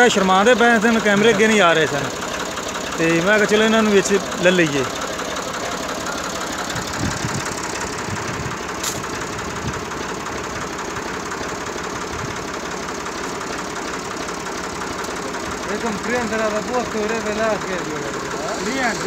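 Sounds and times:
tractor diesel engine idling: 0.0 - 19.0.

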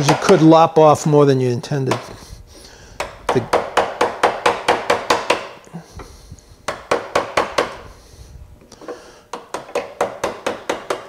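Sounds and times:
mallet tapping a chisel: 0.0 - 0.5, 3.0 - 5.5, 6.7 - 7.8, 9.3 - 11.0.

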